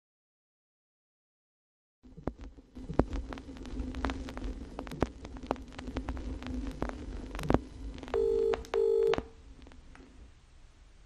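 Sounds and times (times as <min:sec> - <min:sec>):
telephone line electrical hum: 0:02.0 - 0:11.0
crackling clicks: 0:02.1 - 0:10.1.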